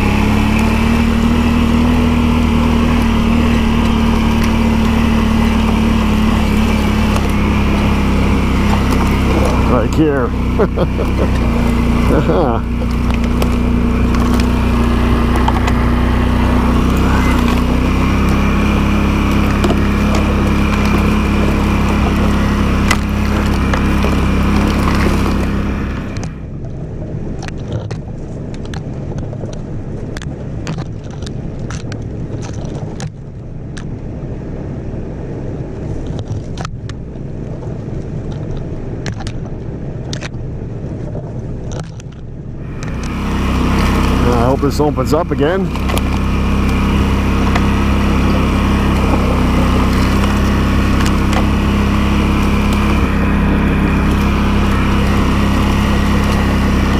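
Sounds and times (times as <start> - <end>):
branches snapping and scraping: 0.0 - 26.4, 45.7 - 56.9
atv engine running: 0.0 - 56.9.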